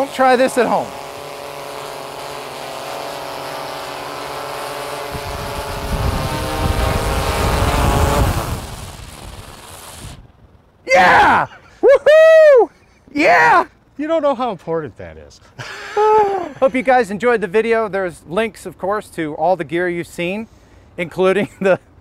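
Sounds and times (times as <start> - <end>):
rotor downwash rumble: 0.0 - 10.4
drone propellers humming: 0.0 - 11.9.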